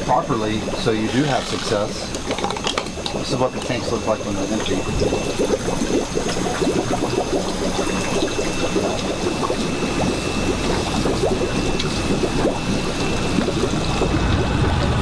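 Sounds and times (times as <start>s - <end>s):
thin high whine: 0.0s - 15.0s
water splashing into tank: 0.0s - 15.0s
low rumble: 12.0s - 15.0s.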